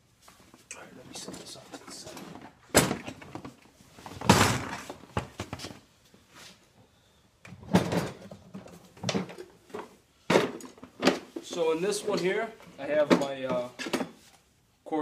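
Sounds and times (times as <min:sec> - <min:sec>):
plastic toolbox clattering: 0:01.9 - 0:05.8, 0:07.5 - 0:14.2.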